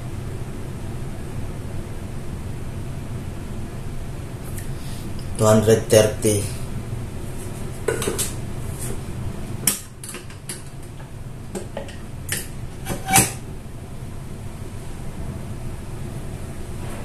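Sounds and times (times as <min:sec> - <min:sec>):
kitchenware clinking and knocking: 0:07.9 - 0:08.3.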